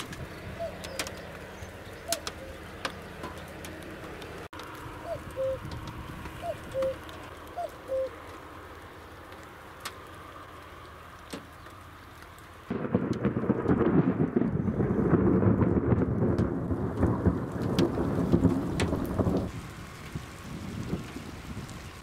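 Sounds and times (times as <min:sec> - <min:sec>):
cuckoo calling: 0:00.3 - 0:03.5, 0:05.0 - 0:05.7, 0:06.3 - 0:08.3.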